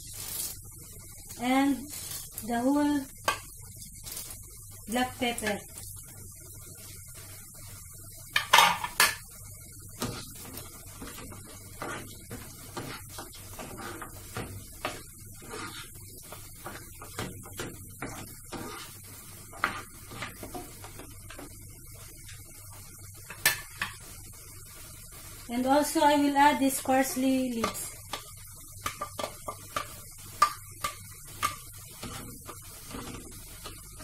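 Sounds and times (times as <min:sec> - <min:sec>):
spatula scraping frying pan: 0:09.9 - 0:21.6, 0:26.8 - 0:34.0.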